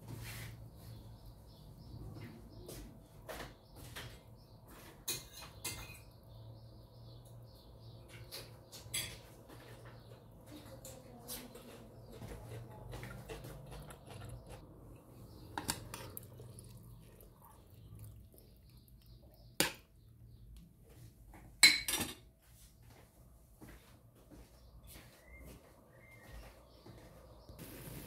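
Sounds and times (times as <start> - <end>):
ladle stirring in metal pot: 12.2 - 19.9.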